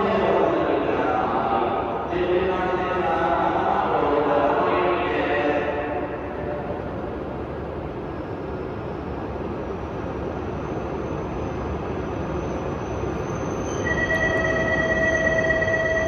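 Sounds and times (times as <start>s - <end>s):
train rumbling in underground station: 0.0s - 16.0s
faint high whine: 10.7s - 16.0s.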